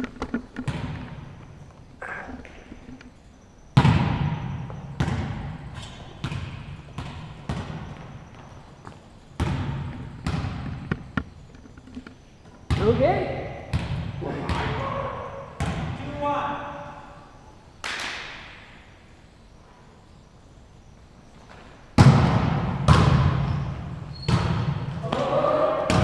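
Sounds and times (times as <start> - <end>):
volleyballs smacking gym floor: 0.0 - 1.5, 3.8 - 11.3, 12.7 - 16.1, 21.5 - 26.0.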